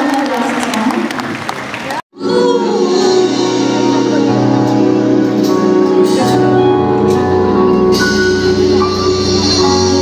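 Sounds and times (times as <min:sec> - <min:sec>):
live band playing held chords: 0:02.2 - 0:10.0.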